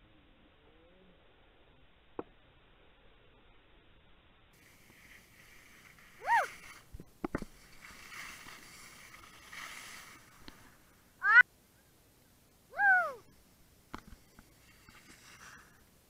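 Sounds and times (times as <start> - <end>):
soft rustle: 4.6 - 11.2, 13.2 - 16.0.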